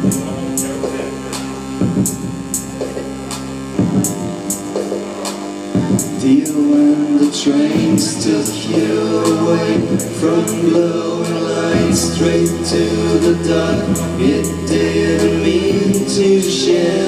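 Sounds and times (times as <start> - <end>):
person singing: 3.9 - 17.0.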